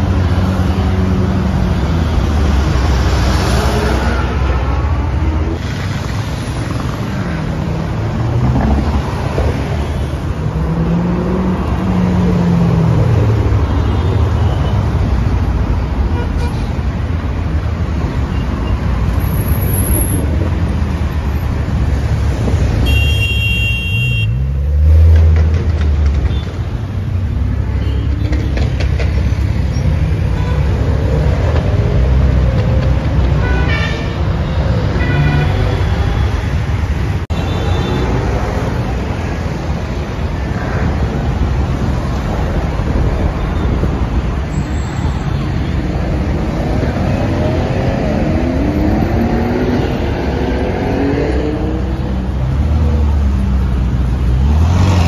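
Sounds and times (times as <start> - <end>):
cars driving by: 0.0 - 55.0
car horns honking: 22.8 - 24.5.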